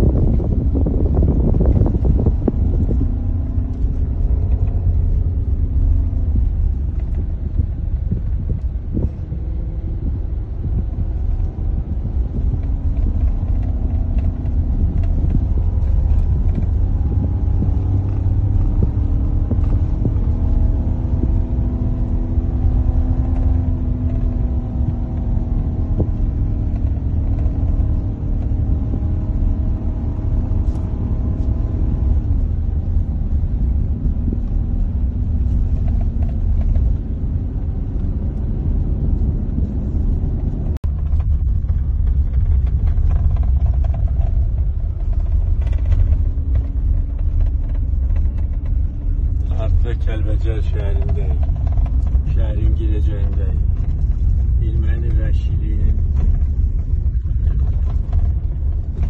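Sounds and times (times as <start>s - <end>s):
car engine: 0.0s - 59.0s
tyres rumbling on gravel road: 0.0s - 59.0s.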